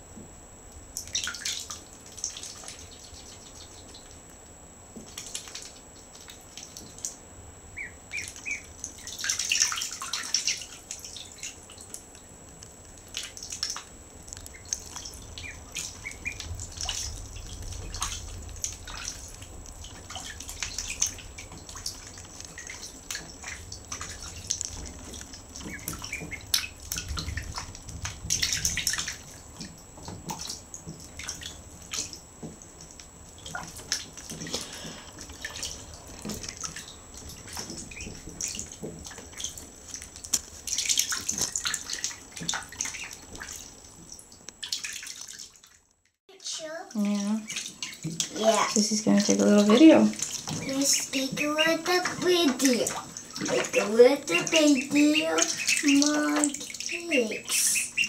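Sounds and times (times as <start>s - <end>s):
small water splashes and drips: 0.9s - 4.3s, 4.9s - 7.2s, 7.8s - 58.0s
ducklings peeping: 1.0s - 4.2s, 7.7s - 11.6s, 14.5s - 29.7s, 33.4s - 43.7s, 47.4s - 58.0s.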